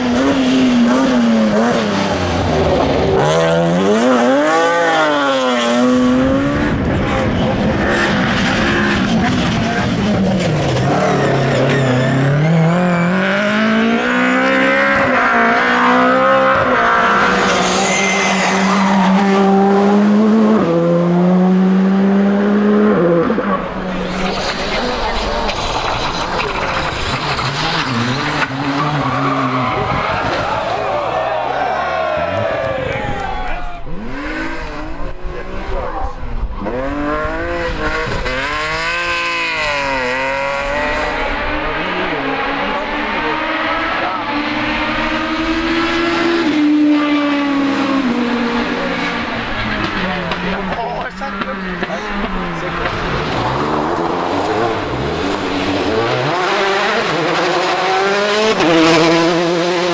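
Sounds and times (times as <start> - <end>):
car engine held high: 0.0 - 59.9
rally car engine revving: 0.0 - 59.9
tyre squeal: 0.7 - 2.8, 10.4 - 13.1, 17.2 - 19.4.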